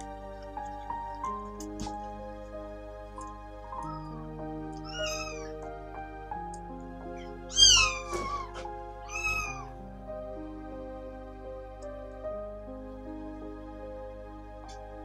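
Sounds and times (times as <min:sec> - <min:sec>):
background music: 0:00.0 - 0:15.0
kitten mewing: 0:04.8 - 0:05.5, 0:07.5 - 0:09.7.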